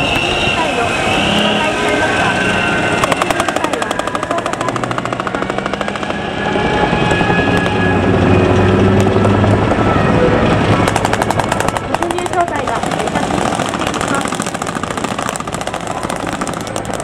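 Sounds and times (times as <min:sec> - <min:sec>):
armored vehicle engines running: 0:00.0 - 0:17.0
machine-gun fire: 0:03.0 - 0:06.1, 0:10.8 - 0:17.0.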